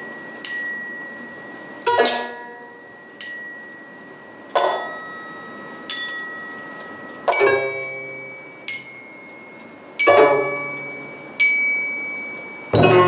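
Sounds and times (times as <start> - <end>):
metal slab chime notes: 0.0 - 13.0
deep string notes: 12.8 - 13.0.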